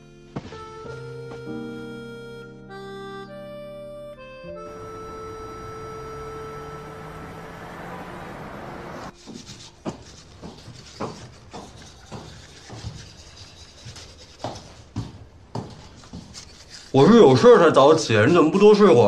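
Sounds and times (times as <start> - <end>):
held music notes: 0.0 - 9.3
toothbrush scrubbing teeth: 9.2 - 14.8, 16.0 - 17.2.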